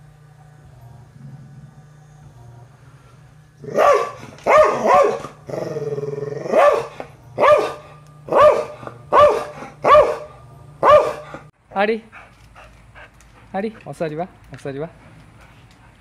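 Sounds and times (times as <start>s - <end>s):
dog barking: 3.7s - 5.3s, 6.5s - 11.3s.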